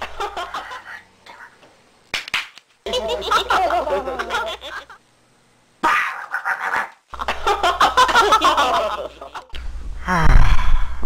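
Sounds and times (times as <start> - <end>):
person making wordless vocal sounds: 10.0 - 10.6.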